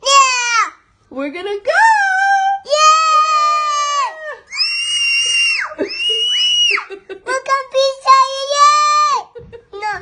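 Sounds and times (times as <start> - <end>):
high-pitched girl shrieks: 2.7 - 6.9
little girl squealing: 2.7 - 6.9.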